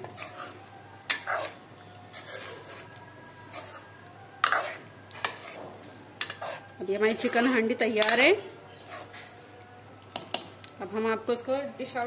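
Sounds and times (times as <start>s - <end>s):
metal ladle scraping pot: 0.0s - 9.2s.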